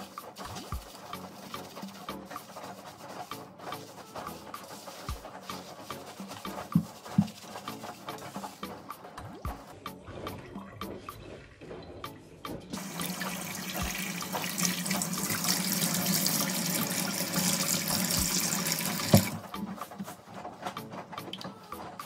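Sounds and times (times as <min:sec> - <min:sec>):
tap water running into sink: 0:12.5 - 0:19.4.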